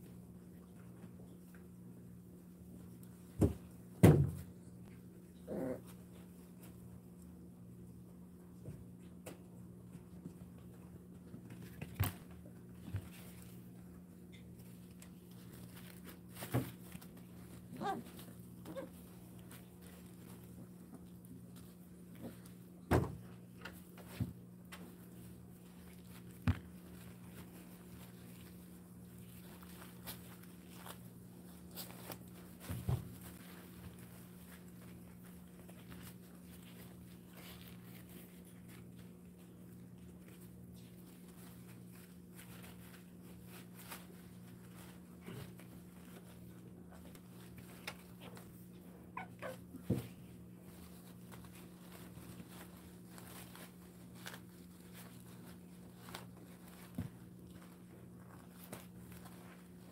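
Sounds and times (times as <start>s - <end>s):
low steady hum: 0.0s - 59.9s
puppy whimper: 5.4s - 5.9s, 17.7s - 19.0s, 49.1s - 49.8s.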